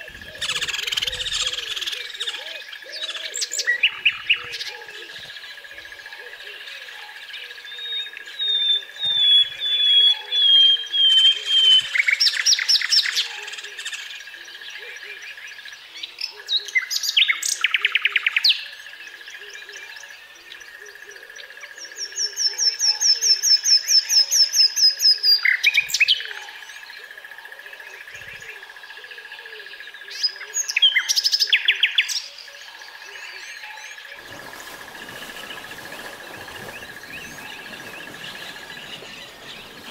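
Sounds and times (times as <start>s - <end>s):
nightingale singing: 0.0s - 5.5s, 7.3s - 14.1s, 29.4s - 39.9s.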